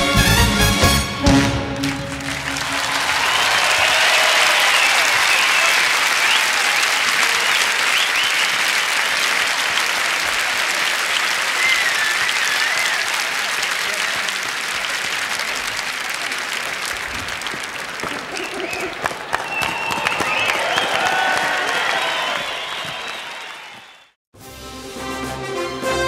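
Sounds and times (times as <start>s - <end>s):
audience applauding: 1.4s - 24.2s
whistles from audience: 2.1s - 10.0s, 11.0s - 13.5s, 18.3s - 24.2s.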